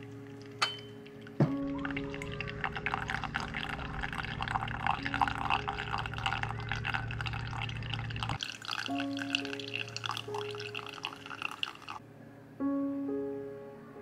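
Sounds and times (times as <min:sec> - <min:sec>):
coffee dripping into glass: 0:00.4 - 0:12.0
water poured from kettle: 0:01.3 - 0:12.0.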